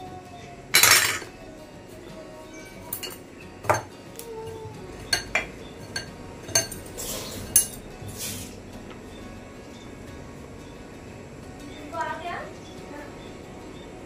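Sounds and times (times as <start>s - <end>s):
glass bowl clinking: 0.7s - 1.4s, 2.5s - 4.0s, 4.6s - 9.9s.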